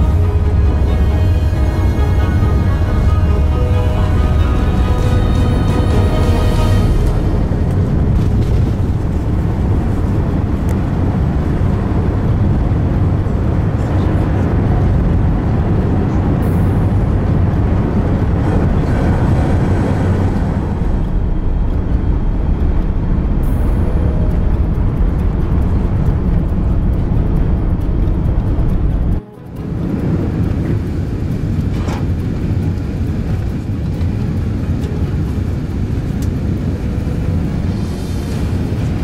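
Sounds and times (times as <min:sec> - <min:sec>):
jet engines deep rumble: 0:00.0 - 0:39.0
rushing air hiss: 0:36.9 - 0:39.0.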